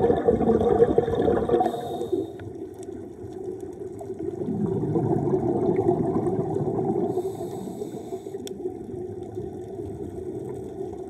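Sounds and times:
exhale bubbling underwater: 0:00.0 - 0:11.0
regulator inhale hiss: 0:01.6 - 0:02.5, 0:07.1 - 0:08.5.

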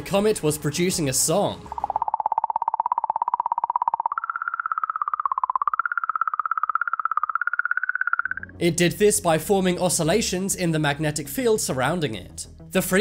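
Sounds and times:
fluttering whistle-like tone: 0:01.7 - 0:08.5.

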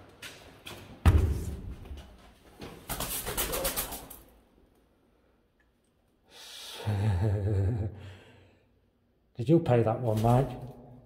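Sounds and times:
pigeon wings clapping: 0:02.9 - 0:04.2
breathy exhale: 0:06.3 - 0:07.0, 0:08.0 - 0:08.8.

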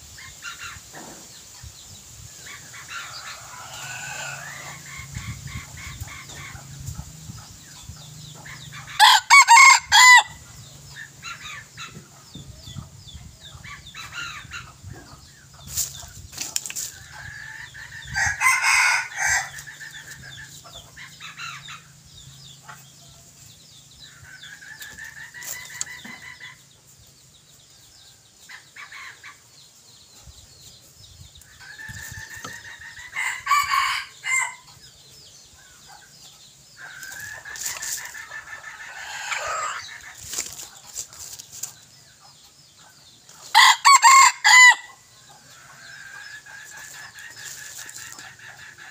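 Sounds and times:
hen clucks: 0:02.4 - 0:27.2, 0:35.5 - 0:48.9
roosters crowing: 0:02.8 - 0:06.5, 0:08.5 - 0:11.6, 0:17.1 - 0:22.0, 0:31.5 - 0:34.8, 0:36.8 - 0:40.1, 0:43.4 - 0:48.9.

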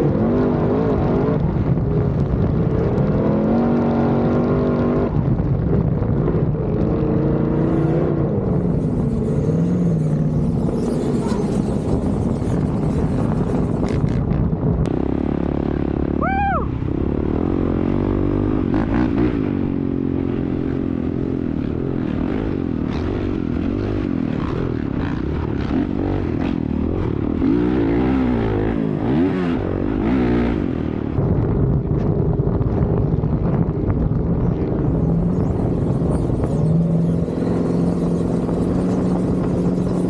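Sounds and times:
wind on microphone: 0:00.0 - 0:15.0, 0:29.6 - 0:40.0
dirt bike engine revving: 0:07.4 - 0:14.2, 0:34.8 - 0:40.0
sandrail engine: 0:07.4 - 0:14.3, 0:34.5 - 0:40.0
high rising and falling tone: 0:07.5 - 0:14.2, 0:34.5 - 0:40.0.

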